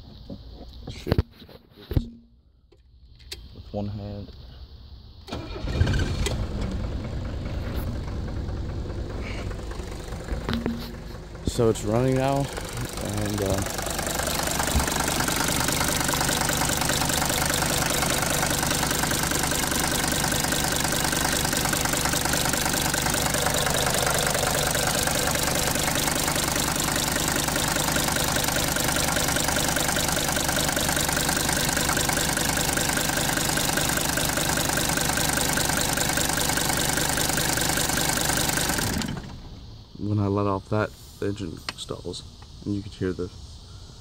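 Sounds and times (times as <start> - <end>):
diesel engine idling: 5.4 - 39.6.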